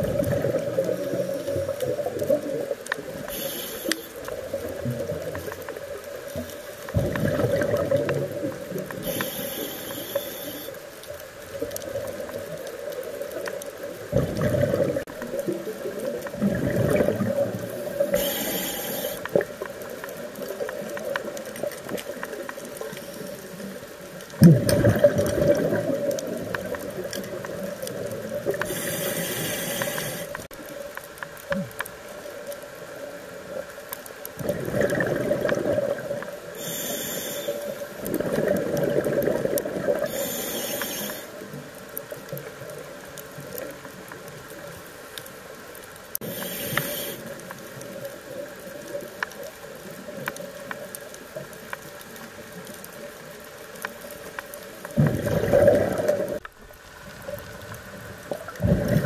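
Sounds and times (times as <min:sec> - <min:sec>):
exhaled bubbles gurgling: 0:00.0 - 0:10.7, 0:11.4 - 0:30.5, 0:34.3 - 0:41.8, 0:54.8 - 0:59.0
regulator inhalation hiss: 0:03.2 - 0:04.3, 0:09.0 - 0:10.8, 0:17.8 - 0:19.4, 0:28.6 - 0:30.5, 0:36.5 - 0:38.0, 0:40.0 - 0:41.5, 0:46.2 - 0:47.5.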